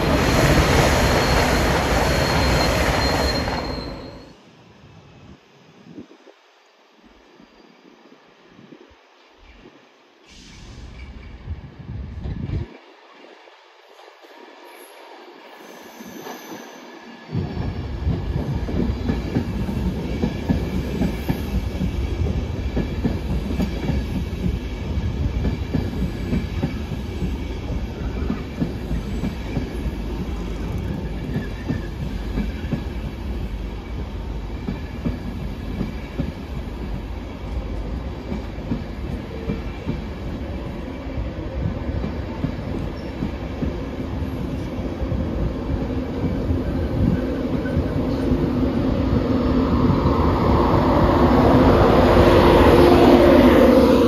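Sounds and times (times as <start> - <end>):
train wheels rumbling over rails: 17.3 - 54.0.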